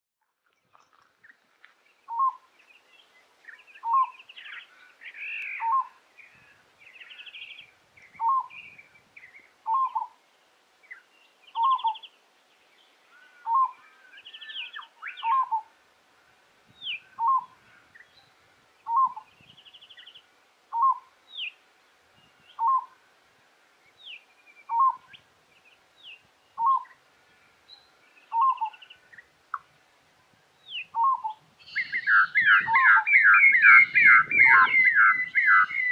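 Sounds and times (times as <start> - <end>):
birds chirping and whistling: 2.1 - 2.4, 3.5 - 10.1, 10.9 - 12.1, 13.1 - 15.6, 16.8 - 18.3, 18.9 - 21.6, 22.4 - 22.9, 24.0 - 25.2, 26.0 - 27.0, 27.7 - 29.2, 30.6 - 35.9
dove calling: 2.1 - 2.5, 3.6 - 10.2, 11.0 - 12.1, 13.1 - 15.7, 16.8 - 17.9, 18.8 - 19.4, 20.0 - 21.6, 22.3 - 23.0, 24.6 - 25.2, 26.6 - 27.0, 28.2 - 29.6, 30.7 - 35.9.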